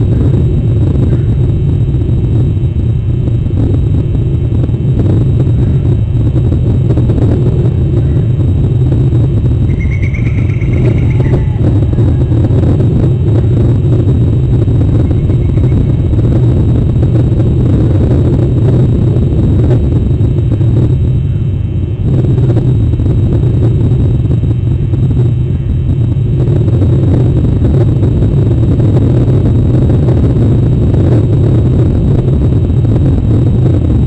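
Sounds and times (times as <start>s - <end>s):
wind rumble on microphone: 0.0s - 34.0s
faint high call: 9.7s - 12.6s.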